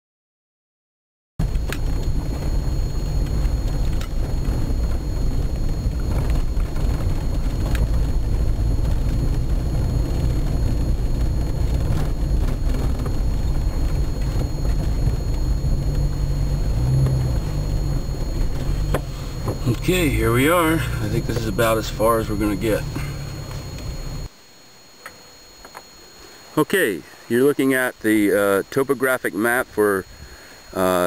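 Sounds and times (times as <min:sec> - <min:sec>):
vehicle engine and road rumble: 0:01.4 - 0:24.3.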